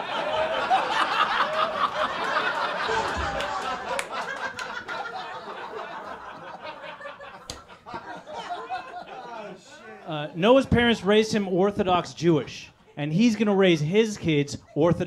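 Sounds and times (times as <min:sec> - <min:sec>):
audience laughing: 0:00.0 - 0:10.4.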